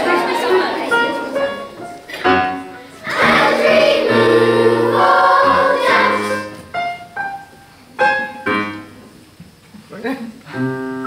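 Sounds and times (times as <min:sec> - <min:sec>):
children's choir singing: 0:00.0 - 0:06.8.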